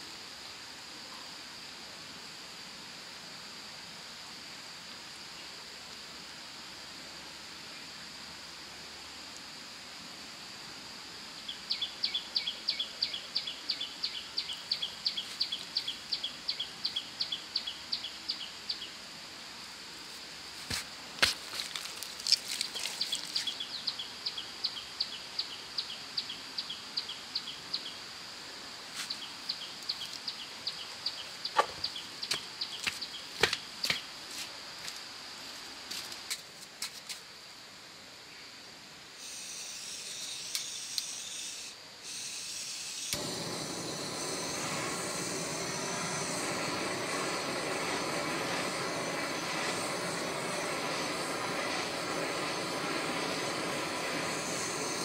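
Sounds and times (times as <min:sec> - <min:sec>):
gas torch hissing: 0:20.6 - 0:23.6, 0:39.2 - 0:55.0
torch flame rushing: 0:43.1 - 0:55.0.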